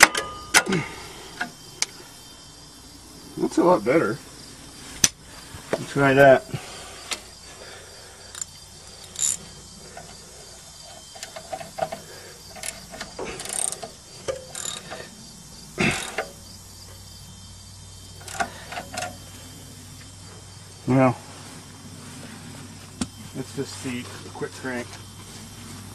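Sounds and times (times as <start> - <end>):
metal clank: 0.0 - 1.5, 10.8 - 15.1
crickets chirping: 0.0 - 25.9
wrench clicking on metal bolt: 12.6 - 15.0, 18.2 - 19.2.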